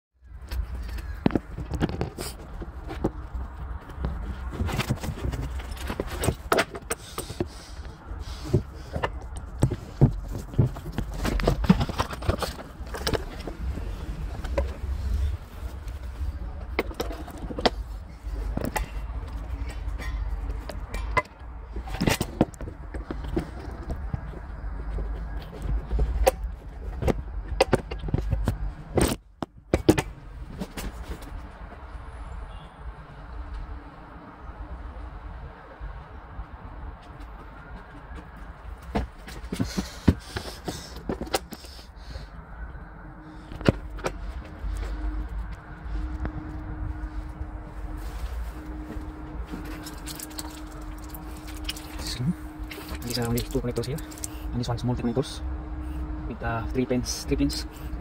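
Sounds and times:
steady low rumble: 7.4s - 32.0s, 38.4s - 58.0s
low rumble: 42.4s - 58.0s.

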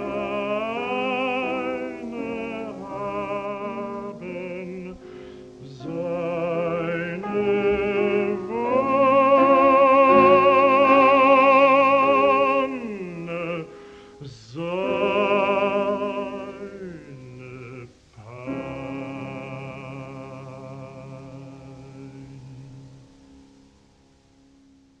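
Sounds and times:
baritone voice singing: 0.0s - 23.2s
piano accompaniment: 0.0s - 25.0s.

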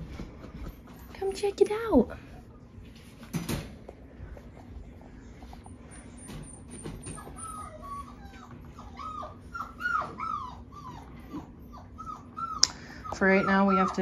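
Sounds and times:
puppies whimpering: 5.2s - 14.0s.

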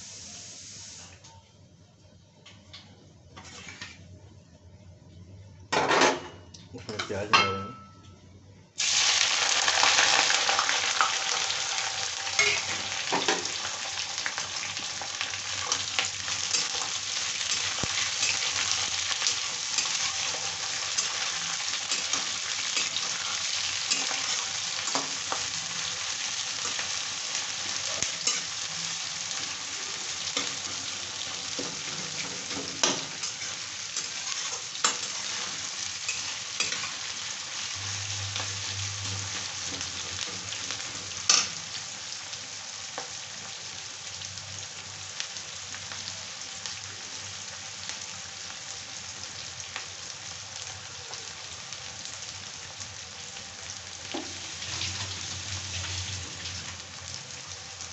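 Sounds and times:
onions sizzling in hot oil: 0.0s - 1.2s, 8.8s - 57.9s
metal spatula scraping a pan: 3.4s - 4.0s, 12.4s - 13.4s.

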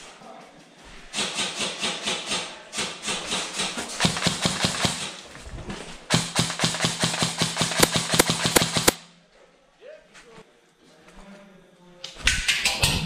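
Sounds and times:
airsoft rifle firing bursts: 1.1s - 5.2s, 6.1s - 9.0s.

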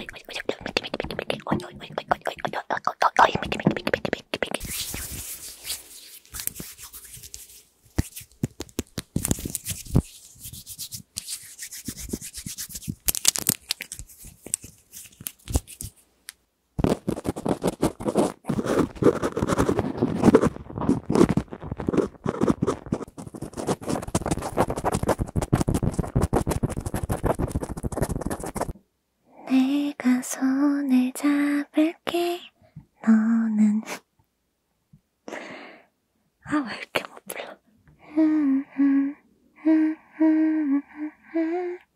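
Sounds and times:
hands rubbing together: 0.0s - 2.4s, 3.2s - 16.0s, 16.9s - 28.7s
cotton swabs scratching microphone: 0.0s - 16.0s, 16.8s - 28.8s.

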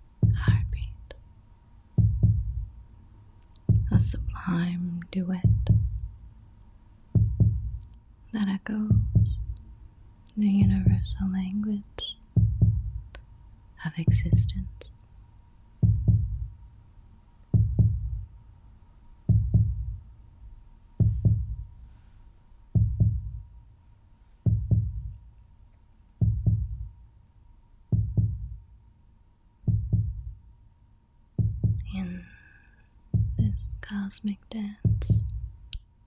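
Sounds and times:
heartbeat thumps: 0.2s - 1.0s, 2.0s - 2.8s, 3.6s - 4.5s, 5.3s - 6.2s, 7.1s - 8.0s, 8.8s - 9.6s, 10.6s - 11.2s, 12.2s - 13.2s, 14.0s - 14.8s, 15.8s - 16.6s, 17.5s - 18.4s, 19.3s - 20.1s, 21.0s - 21.8s, 22.8s - 23.5s, 24.4s - 25.2s, 26.2s - 27.0s, 27.9s - 28.6s, 29.7s - 30.4s, 31.4s - 32.0s, 33.1s - 33.9s, 34.7s - 35.7s.

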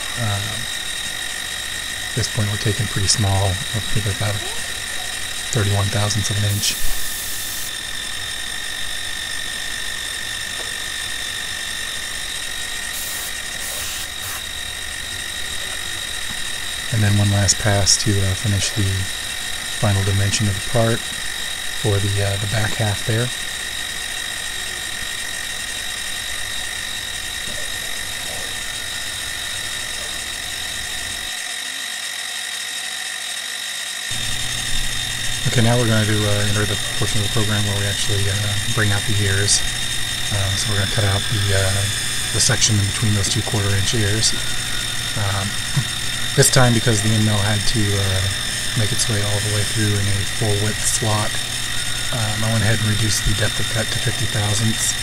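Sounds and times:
milling machine cutting metal: 0.0s - 55.0s
hiss of metal cutting: 5.6s - 7.7s, 12.9s - 14.5s.

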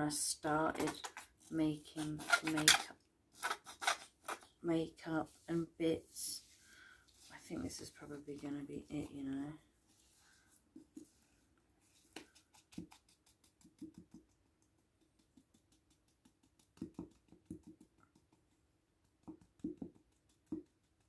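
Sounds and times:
plastic bottle shaken: 2.0s - 4.5s.

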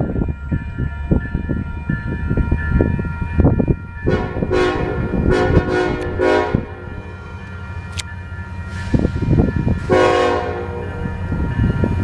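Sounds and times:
crossing bell ringing: 0.0s - 12.0s
locomotive horn blasts: 4.1s - 6.8s, 9.9s - 11.0s.

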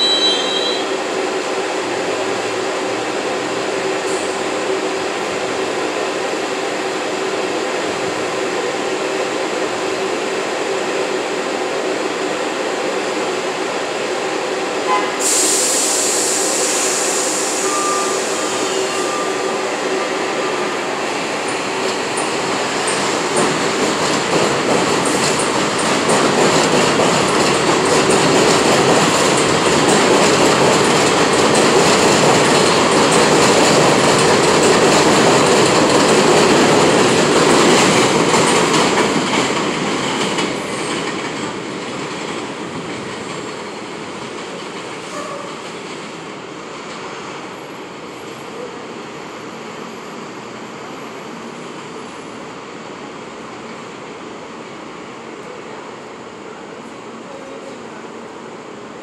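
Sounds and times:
train wheels rumbling on rails: 0.0s - 59.0s
high hiss: 15.1s - 19.6s.

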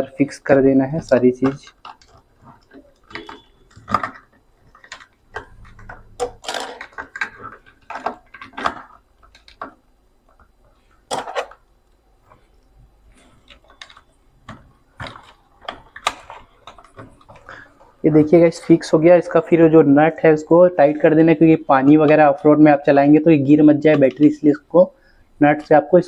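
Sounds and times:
plastic clicks taps and rattles: 1.3s - 11.6s, 13.2s - 17.9s.

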